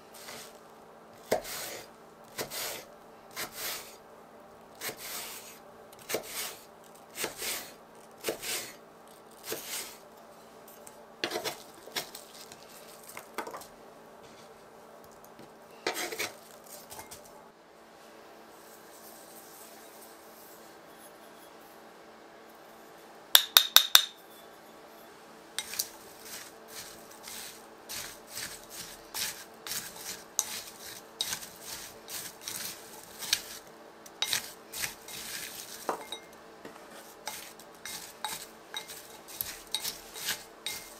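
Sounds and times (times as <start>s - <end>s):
utensil scraping mixing bowl: 4.8s - 8.8s, 15.8s - 17.1s, 25.6s - 40.9s.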